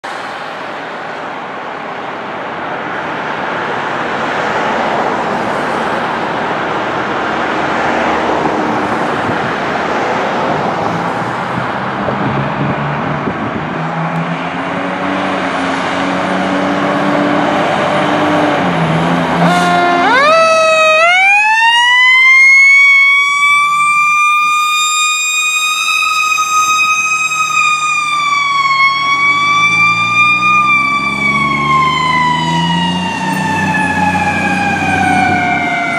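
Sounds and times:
fire engine revving: 0:02.6 - 0:35.9
siren wailing: 0:19.3 - 0:35.9.

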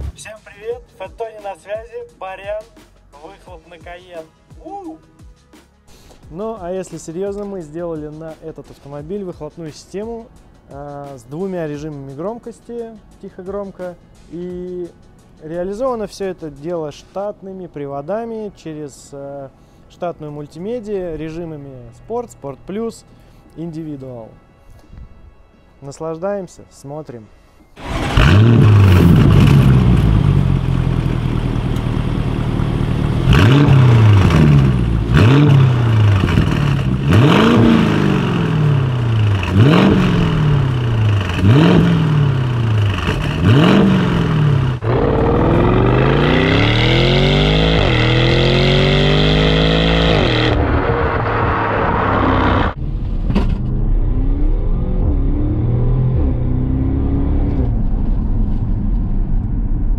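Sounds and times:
car accelerating with upshifts: 0:27.8 - 0:52.8, 0:54.0 - 0:59.1
car engine revving: 0:27.8 - 0:59.8.

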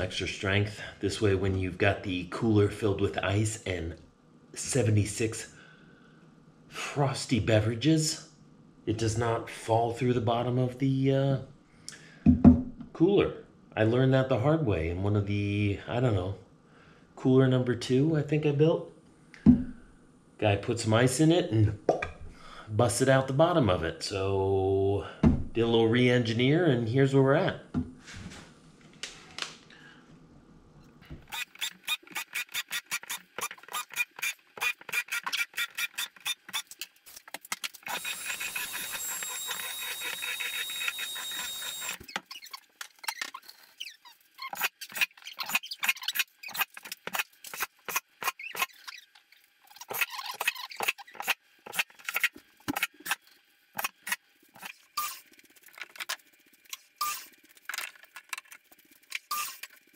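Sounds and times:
screws squealing into wood: 0:31.2 - 0:36.7, 0:37.8 - 0:49.1, 0:49.7 - 0:53.2, 0:53.8 - 0:55.2, 0:57.0 - 0:57.3, 0:59.2 - 0:59.7
cordless drill motor: 0:37.8 - 0:42.1.

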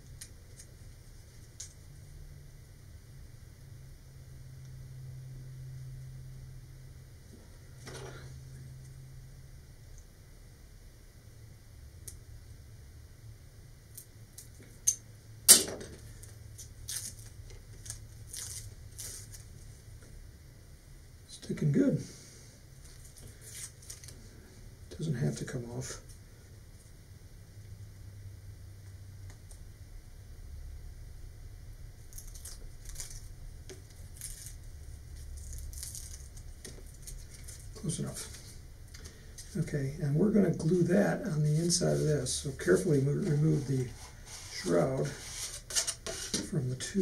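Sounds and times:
paper rustling and scraping: 0:16.1 - 0:19.6, 0:40.6 - 0:47.0.

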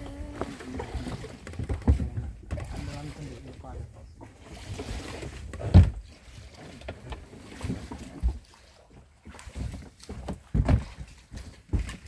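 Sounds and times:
thumps on boat hull: 0:05.6 - 0:06.0, 0:10.2 - 0:11.1.

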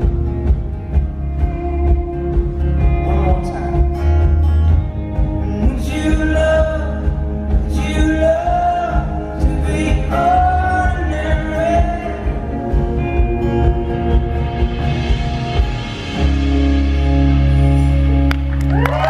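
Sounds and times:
drums: 0:00.0 - 0:19.0
man singing: 0:05.4 - 0:13.0.

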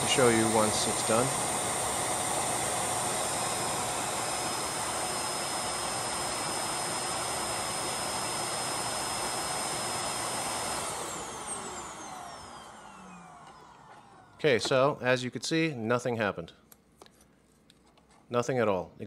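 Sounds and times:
suction motor whining: 0:00.0 - 0:14.4.

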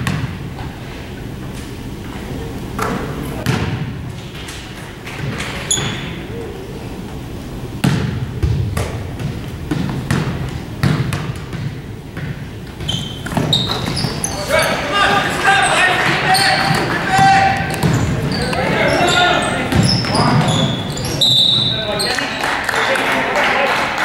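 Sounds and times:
murmur of crowd chatter: 0:06.1 - 0:08.4, 0:13.3 - 0:24.0
basketball bouncing on hardwood: 0:07.8 - 0:14.2, 0:16.6 - 0:18.6, 0:19.7 - 0:21.0.

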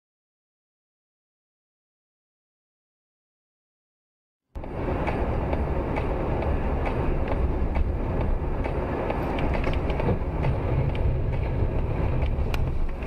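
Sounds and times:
car tyre and engine rumble: 0:04.6 - 0:13.0.

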